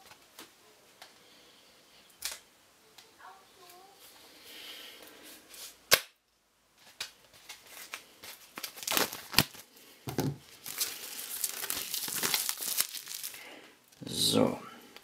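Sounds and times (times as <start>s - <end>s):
shrink wrap crinkling and tearing: 6.8s - 9.8s, 10.5s - 14.0s.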